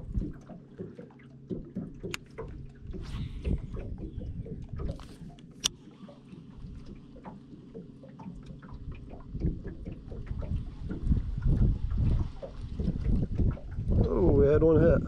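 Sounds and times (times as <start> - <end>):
wind buffeting microphone: 0.0 - 0.5, 2.4 - 5.3, 8.8 - 15.0
steady low hum: 0.0 - 15.0.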